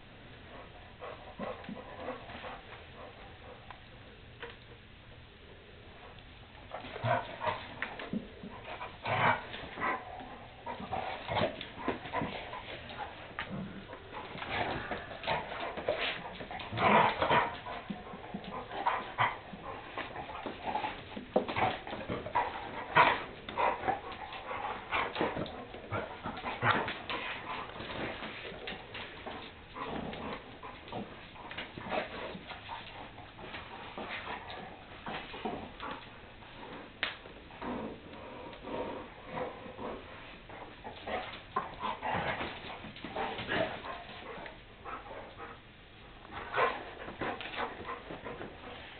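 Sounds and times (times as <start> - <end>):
dogs play-fighting vocalising: 6.7 - 36.1, 40.0 - 45.7.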